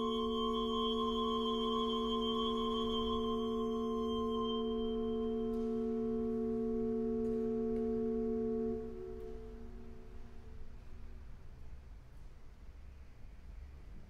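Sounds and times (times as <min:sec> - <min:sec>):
pipe organ chord: 0:00.0 - 0:10.3.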